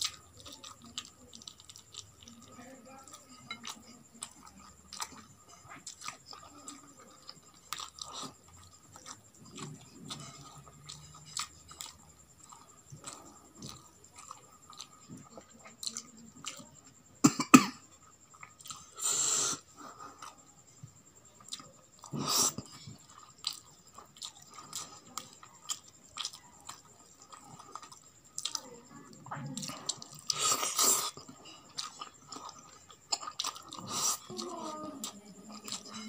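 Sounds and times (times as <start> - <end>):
person chewing food: 0.0 - 17.2, 17.8 - 36.0
person coughing: 17.2 - 17.8.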